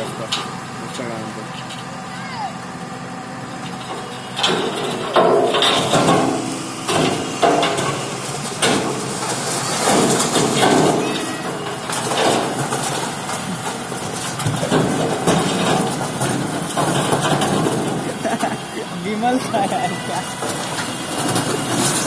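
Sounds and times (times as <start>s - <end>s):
truck engine running: 0.0s - 22.0s
rocks clattering out of truck bed: 3.7s - 18.8s, 20.4s - 22.0s.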